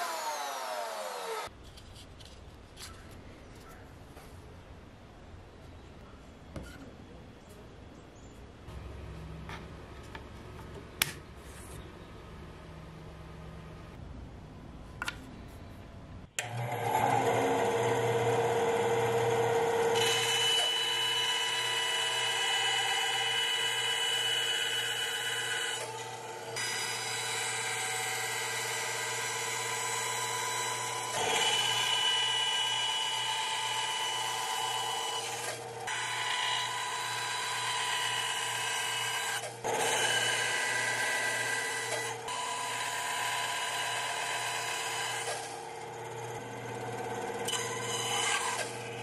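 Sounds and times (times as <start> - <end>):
band saw cutting wood: 0.0 - 1.5, 16.4 - 49.0.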